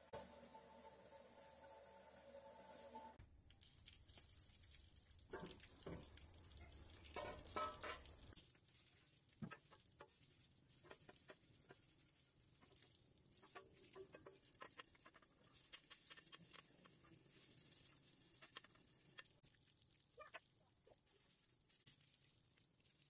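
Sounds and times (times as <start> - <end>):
water splashing and running: 0.0 - 23.0
wet sponge rubbing bicycle frame: 8.7 - 19.2.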